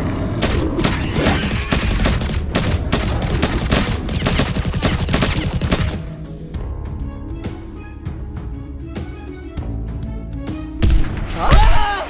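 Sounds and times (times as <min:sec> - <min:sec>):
animated gunfire: 0:00.4 - 0:06.0.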